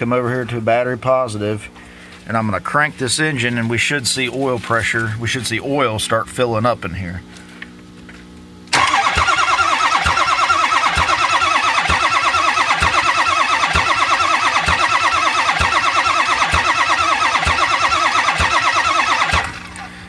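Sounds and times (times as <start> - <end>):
diesel engine starter cranking: 8.7 - 19.9.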